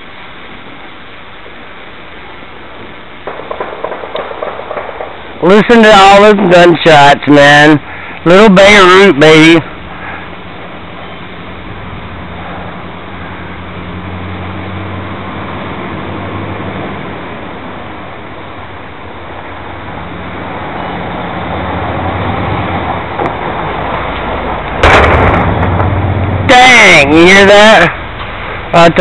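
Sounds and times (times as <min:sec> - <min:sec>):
quadcopter rotors droning: 0:00.0 - 0:29.0
fireworks bursting: 0:02.6 - 0:07.0, 0:22.6 - 0:26.2.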